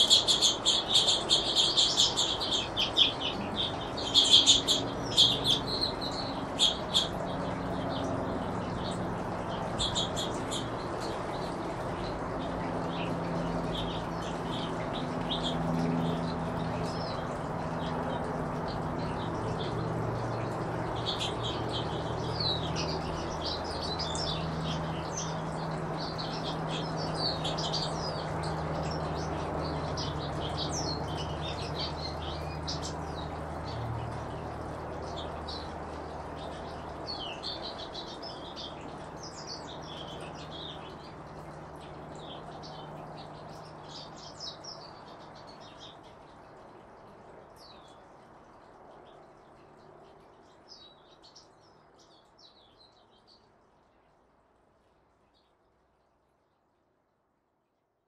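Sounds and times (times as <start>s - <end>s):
steady low hum: 0.0s - 44.2s
finches chirping: 0.0s - 46.2s.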